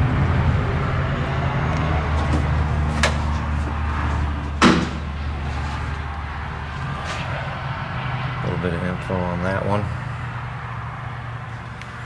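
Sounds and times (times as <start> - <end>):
low hum: 0.0 - 12.0
heavy thump: 4.6 - 5.2.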